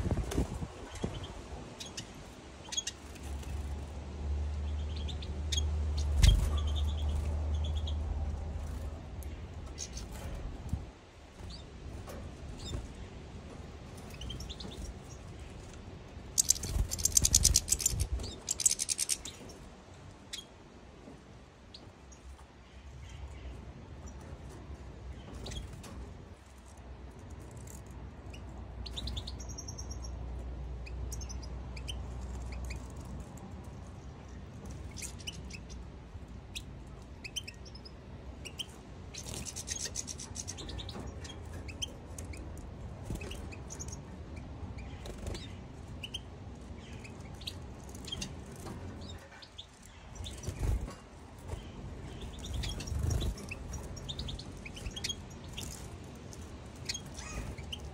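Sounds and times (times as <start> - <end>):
finches chirping and twittering: 0.9 - 3.6, 4.7 - 10.8, 16.3 - 19.6, 34.2 - 35.9, 36.5 - 57.9
steady low rumble: 3.1 - 19.6.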